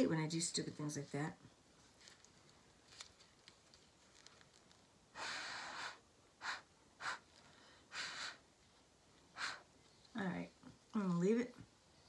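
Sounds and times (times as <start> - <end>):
breathy puffs of air: 5.1 - 8.5, 9.3 - 9.7.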